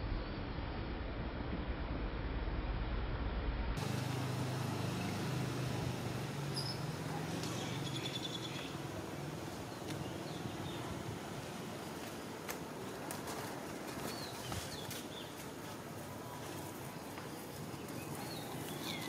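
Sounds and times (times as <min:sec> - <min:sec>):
low hum: 0:00.0 - 0:08.0.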